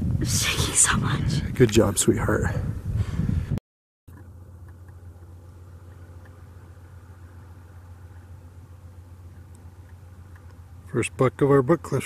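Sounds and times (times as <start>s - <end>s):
vehicle engine idling: 4.1s - 12.0s.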